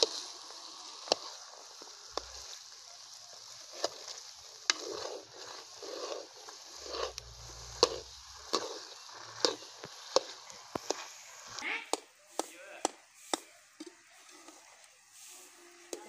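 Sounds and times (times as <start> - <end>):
spatula scraping a pan: 0.0 - 12.5
frying hiss: 0.0 - 16.0.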